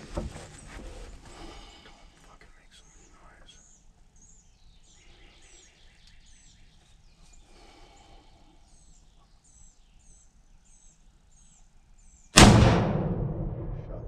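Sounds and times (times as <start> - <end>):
rifle shot with echo: 12.4 - 14.0.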